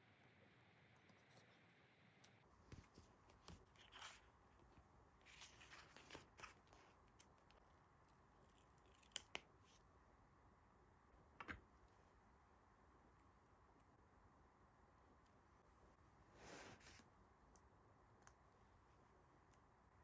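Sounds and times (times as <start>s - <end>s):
paper rustling: 5.2s - 7.0s.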